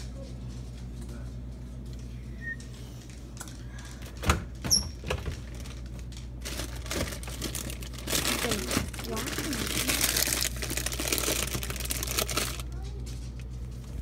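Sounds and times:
refrigerator hum: 0:00.0 - 0:14.0.

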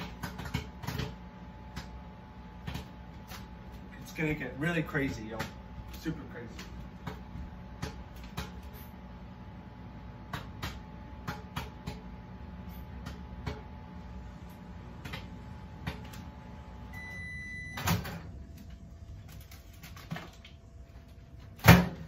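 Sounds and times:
microwave oven humming: 0:00.0 - 0:22.0
microwave beep: 0:16.8 - 0:18.4.

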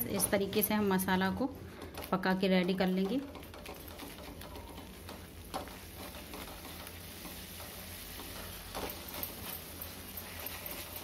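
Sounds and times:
paste sizzling: 0:03.3 - 0:11.0.

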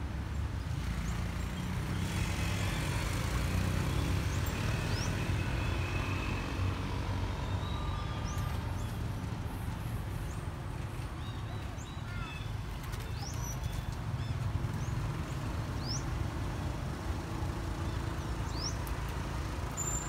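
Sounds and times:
vehicle passing with tyre hiss: 0:00.6 - 0:10.5.

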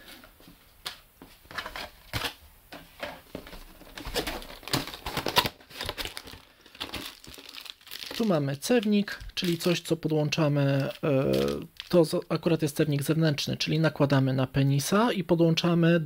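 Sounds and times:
cardboard packaging rustling: 0:03.2 - 0:13.2.

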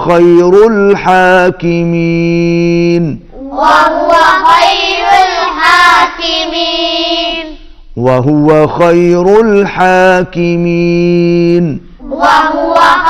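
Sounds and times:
man reciting: 0:00.0 - 0:03.3, 0:08.0 - 0:12.0
boys chanting in unison: 0:03.3 - 0:07.6, 0:12.0 - 0:13.0.

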